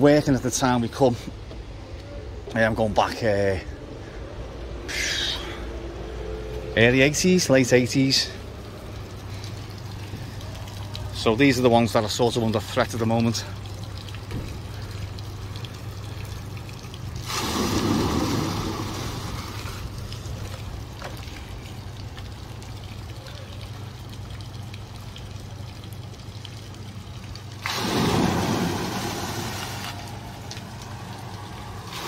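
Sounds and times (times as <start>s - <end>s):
running water: 2.5s - 32.0s
buckets dumping water splashing: 6.8s - 32.0s.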